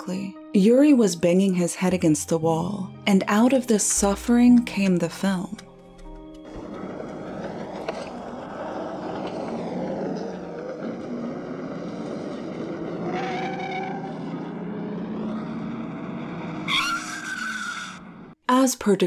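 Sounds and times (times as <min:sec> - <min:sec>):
vehicles speeding past: 0:06.4 - 0:18.4.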